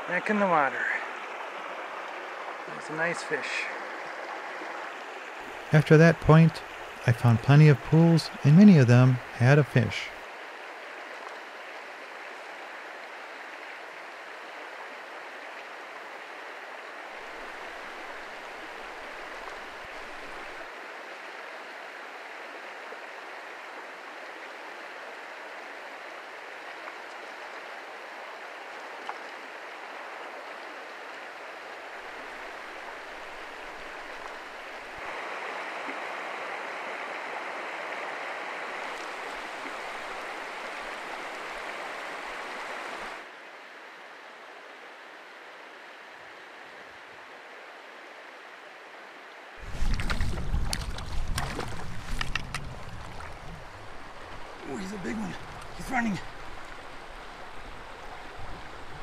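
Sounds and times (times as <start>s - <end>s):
creek flowing over rocks: 0.0s - 59.0s.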